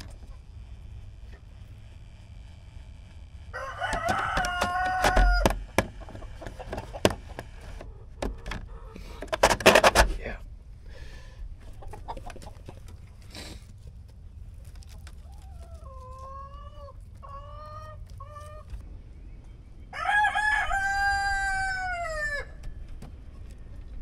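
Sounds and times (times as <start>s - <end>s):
rooster crowing: 3.5s - 5.7s, 19.9s - 22.6s
chickens calling: 3.6s - 10.0s, 10.9s - 24.0s.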